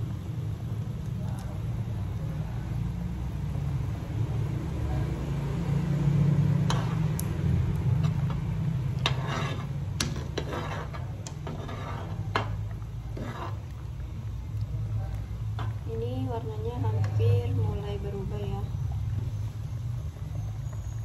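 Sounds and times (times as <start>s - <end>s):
metal ladle scraping a pot: 6.6s - 7.2s, 8.0s - 13.9s.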